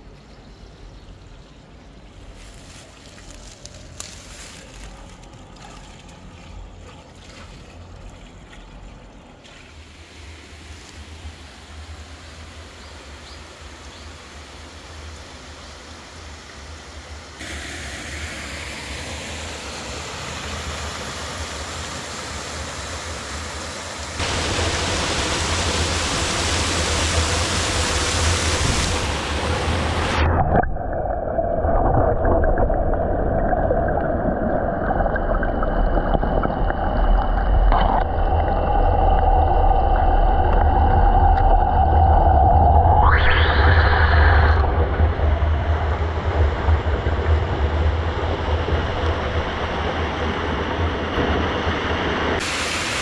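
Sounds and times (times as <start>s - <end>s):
steady hum: 10.0s - 53.0s
waterfall roaring: 17.4s - 30.3s.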